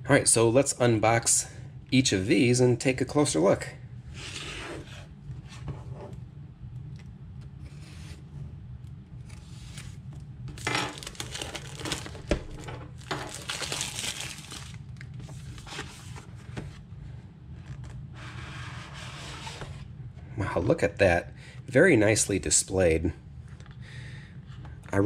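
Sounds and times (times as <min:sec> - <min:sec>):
plastic wrap tearing and crinkling: 0:09.4 - 0:15.9.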